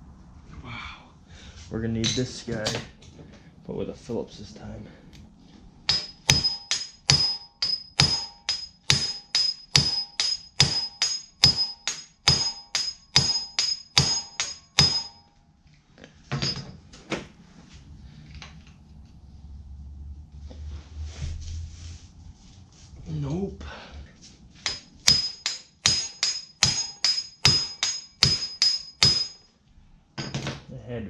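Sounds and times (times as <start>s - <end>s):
hammer striking impact driver: 5.9s - 15.2s, 24.6s - 29.4s.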